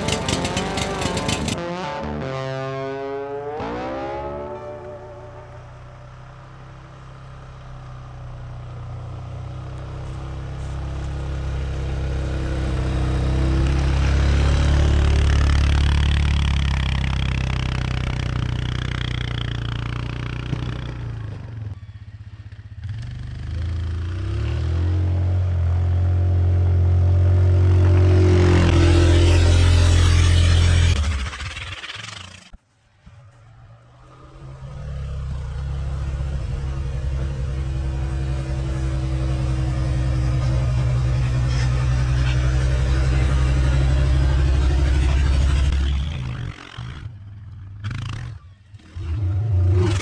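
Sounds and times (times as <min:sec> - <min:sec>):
atv engine running under load: 0:00.0 - 0:01.6, 0:05.1 - 0:24.8, 0:34.5 - 0:46.9.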